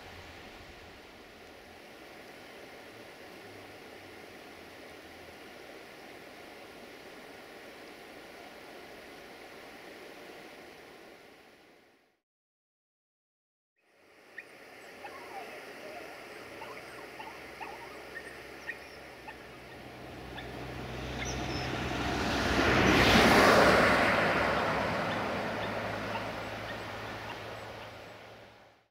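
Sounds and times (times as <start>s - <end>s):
bird chirps: 14.4s - 20.5s, 21.2s - 21.8s, 25.1s - 28.2s
vehicle passing: 17.8s - 28.7s.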